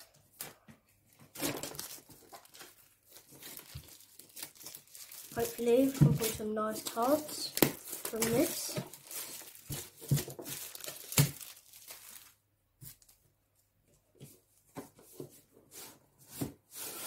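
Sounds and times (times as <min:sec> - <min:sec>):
plastic wrap tearing and crinkling: 0:00.0 - 0:13.2.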